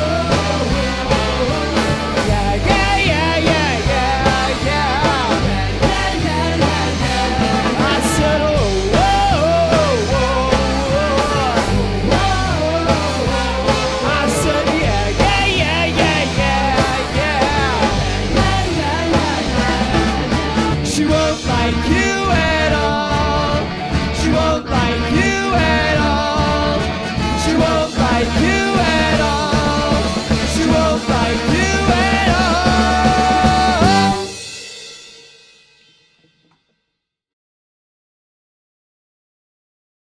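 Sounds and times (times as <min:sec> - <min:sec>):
ska band playing live: 0:00.0 - 0:35.4
trumpet and trombone: 0:24.9 - 0:34.4.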